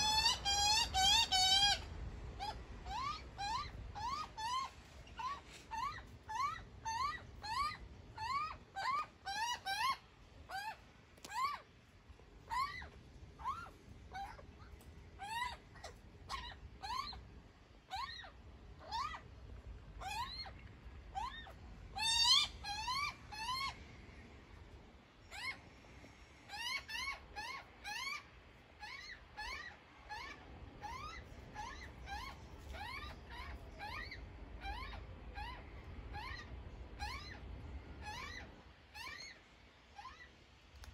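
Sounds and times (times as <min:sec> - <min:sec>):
young magpie begging squawks: 0:00.0 - 0:01.8, 0:21.2 - 0:23.8.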